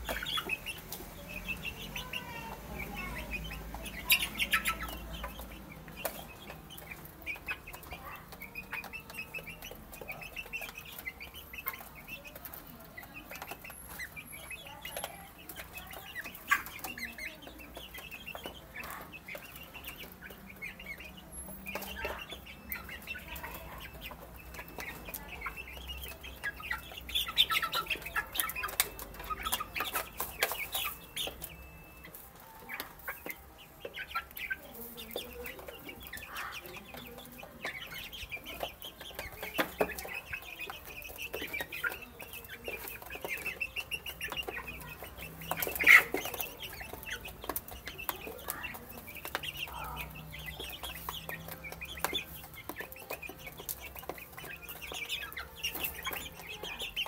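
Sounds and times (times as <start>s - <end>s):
chicks cheeping: 0.0s - 57.0s.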